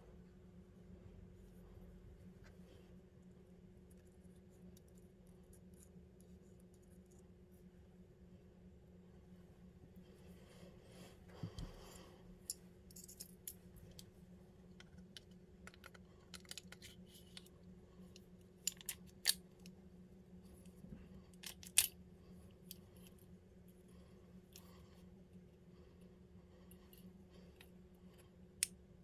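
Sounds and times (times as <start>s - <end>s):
faint steady hum: 0.0s - 29.0s
metal gun parts clicking: 12.5s - 14.0s, 14.8s - 17.5s, 18.6s - 19.4s, 21.4s - 21.9s.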